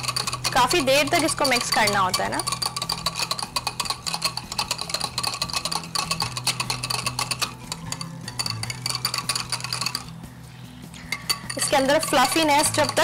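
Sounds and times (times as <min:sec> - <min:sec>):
utensil clicking against bowl: 0:00.0 - 0:10.2, 0:11.0 - 0:13.0.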